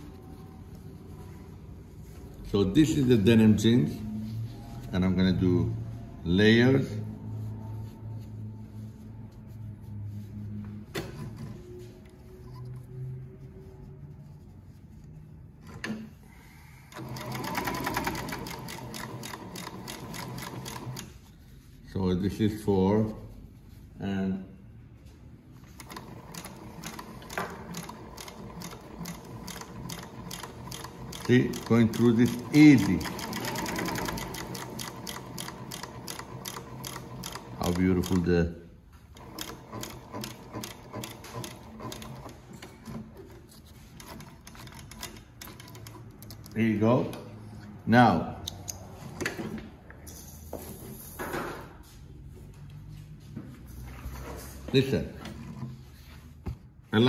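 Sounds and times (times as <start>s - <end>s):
industrial sewing machine stitching: 16.9s - 21.1s, 25.7s - 38.3s, 39.2s - 43.2s.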